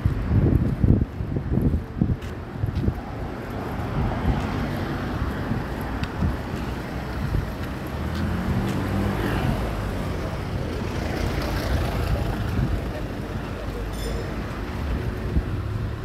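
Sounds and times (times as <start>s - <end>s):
traffic rumble: 0.0s - 16.0s
vehicle engine hum: 0.0s - 16.0s.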